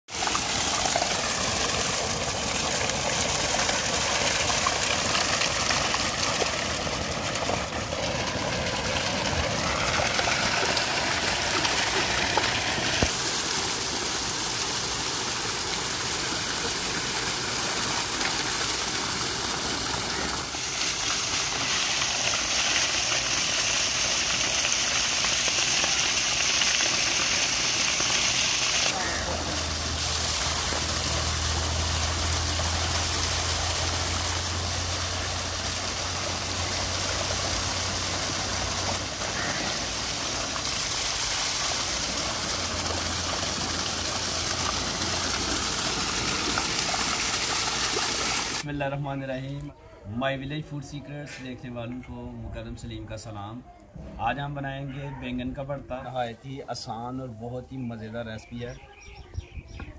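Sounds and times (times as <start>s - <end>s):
water gushing from a pipe: 0.1s - 48.7s
water splashing: 0.1s - 48.7s.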